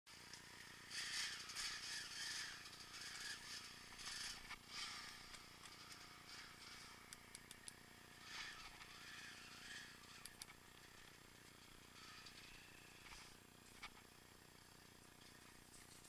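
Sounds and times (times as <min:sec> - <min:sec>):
bike rattling: 0:00.2 - 0:16.0
quick sharp ticks: 0:07.1 - 0:07.8.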